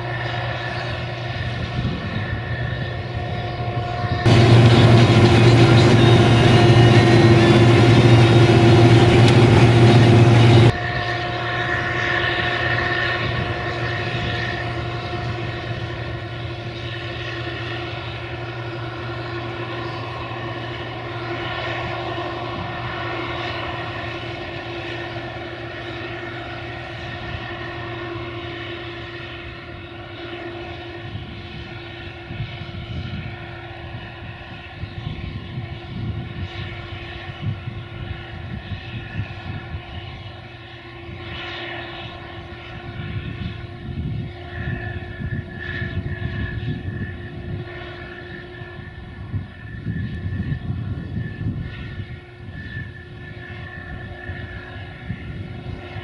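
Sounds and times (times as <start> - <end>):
combine harvester running: 0.0 - 34.9.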